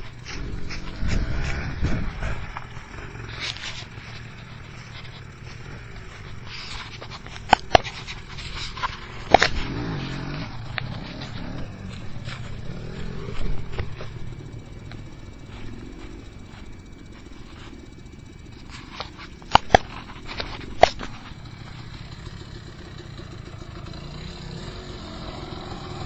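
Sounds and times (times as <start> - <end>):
sharp clicks: 0.0 - 15.1
dirt bike engine revving: 0.0 - 26.0.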